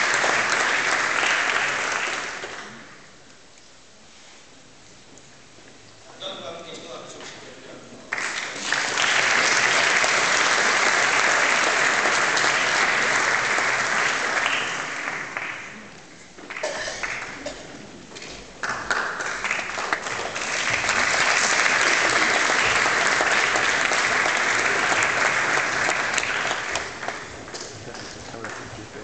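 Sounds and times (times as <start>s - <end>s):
audience applauding: 0.0s - 3.0s, 8.1s - 17.8s, 18.6s - 29.0s.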